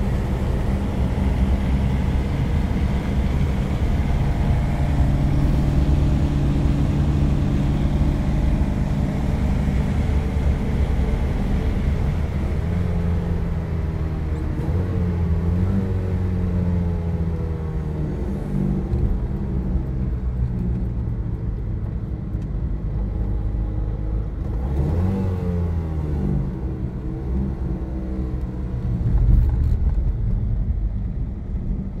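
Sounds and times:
car engine while driving: 0:00.0 - 0:32.0.

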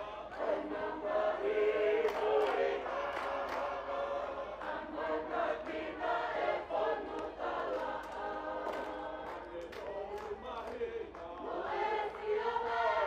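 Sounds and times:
mixed chorus singing: 0:00.0 - 0:13.0
sharp hand claps: 0:02.0 - 0:03.7, 0:07.2 - 0:11.5.

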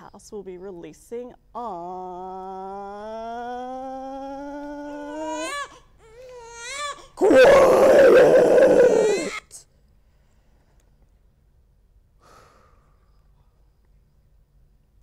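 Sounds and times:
baby crying: 0:02.4 - 0:09.6
person shouting: 0:07.2 - 0:09.4.

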